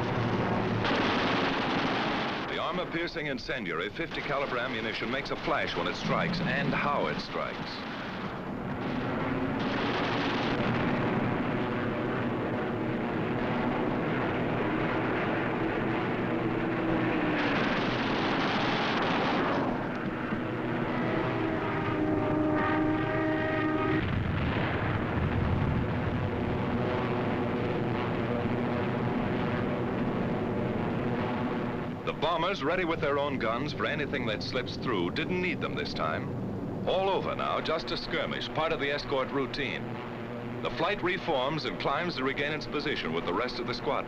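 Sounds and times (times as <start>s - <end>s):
piston aircraft engines droning: 0.0s - 44.0s.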